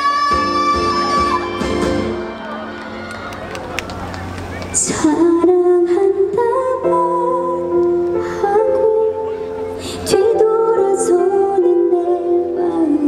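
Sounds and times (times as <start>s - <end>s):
woman singing a slow ballad: 0.0s - 1.8s, 4.8s - 13.0s
backing music: 0.0s - 13.0s.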